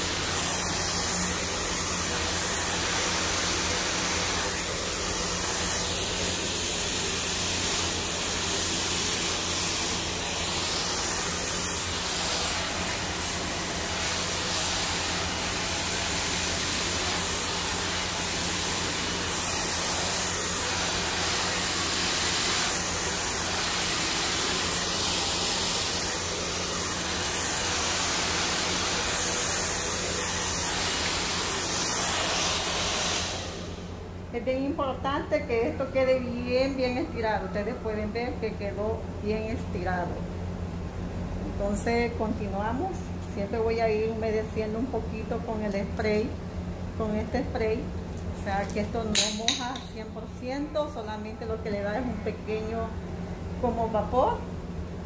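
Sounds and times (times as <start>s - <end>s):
hair dryer blowing air: 0.0s - 34.1s.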